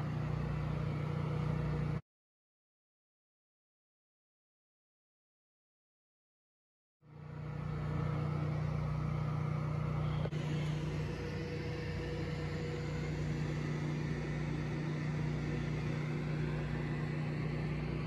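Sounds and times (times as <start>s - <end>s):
low machine hum: 0.0s - 2.0s, 7.0s - 18.0s.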